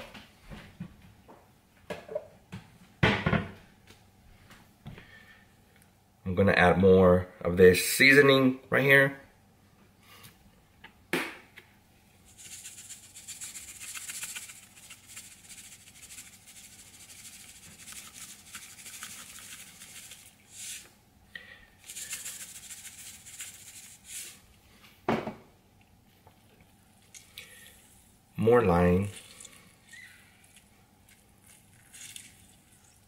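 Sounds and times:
seasoning shaker rattling: 12.2s - 20.9s, 21.8s - 24.4s, 29.0s - 33.0s.

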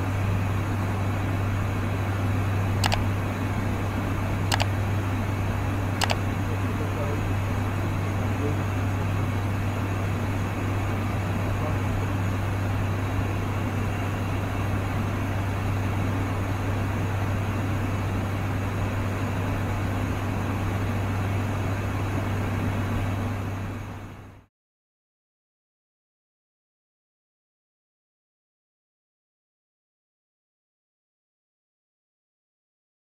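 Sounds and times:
propeller hum: 0.0s - 24.2s.

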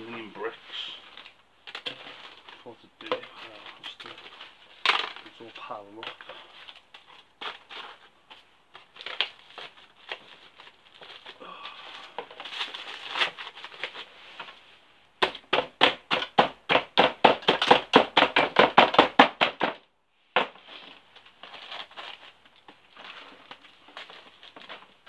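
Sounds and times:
aluminium foil crinkling: 0.4s - 14.2s, 21.0s - 25.0s
rapid knocks tamping foil: 15.2s - 19.8s.

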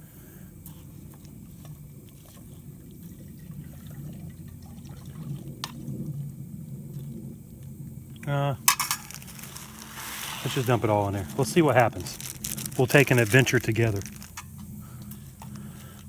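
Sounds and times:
food bubbling in a pot: 0.0s - 11.7s.

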